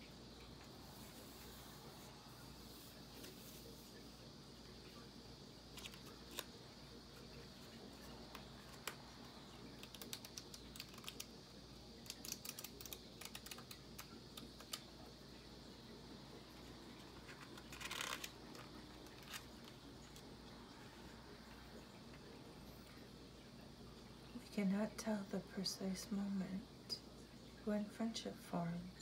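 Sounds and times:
fingers clicking on book pages: 5.7s - 6.5s, 8.2s - 11.4s, 12.0s - 15.0s, 16.9s - 20.3s.

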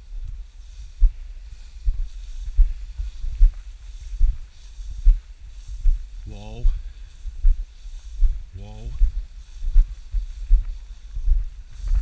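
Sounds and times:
footsteps in dry grass: 0.0s - 12.0s
grass brushing: 0.0s - 12.0s.

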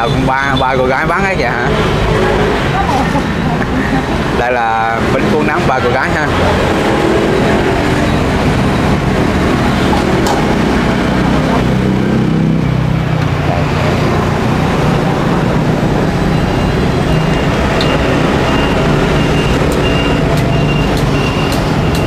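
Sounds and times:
street traffic engines: 0.0s - 22.0s
repeating high electronic beep: 16.0s - 22.0s.

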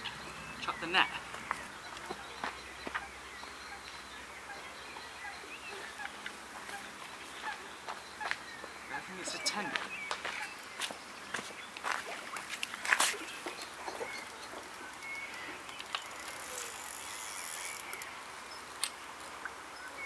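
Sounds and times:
bird chirps: 0.0s - 12.4s, 13.1s - 18.8s
reel clicks: 15.7s - 18.1s.

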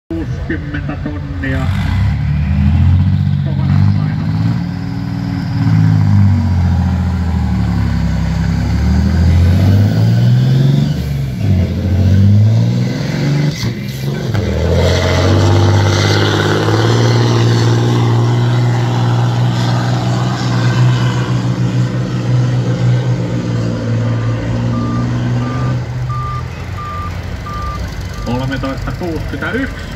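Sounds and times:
truck diesel engine labouring: 0.1s - 29.9s.

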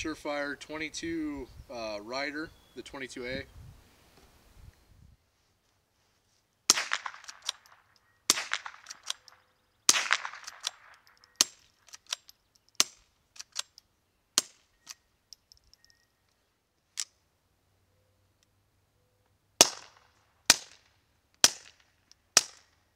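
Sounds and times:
suppressed rifle shots: 6.7s - 13.7s, 19.6s - 21.8s
rifle cocking lever clicks: 7.1s - 16.4s.

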